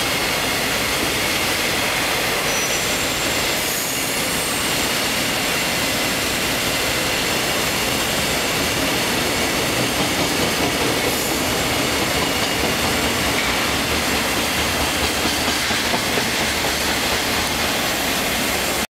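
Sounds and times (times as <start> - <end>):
train wheels rumbling on rail: 0.0 - 18.9
wheels clacking over rail joints: 7.7 - 18.8.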